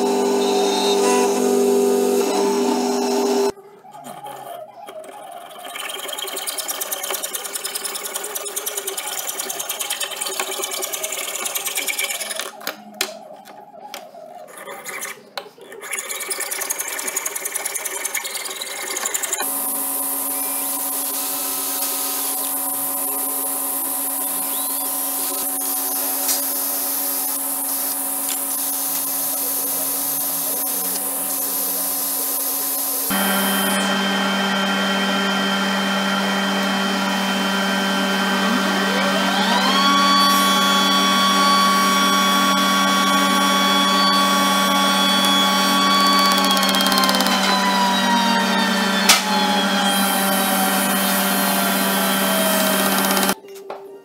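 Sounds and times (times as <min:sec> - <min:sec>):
steady motor running: 0:00.0 - 0:03.5, 0:19.4 - 0:53.4
hacksaw cutting metal: 0:05.7 - 0:12.5, 0:45.0 - 0:47.8, 0:49.0 - 0:53.4
cordless drill running: 0:19.4 - 0:53.4.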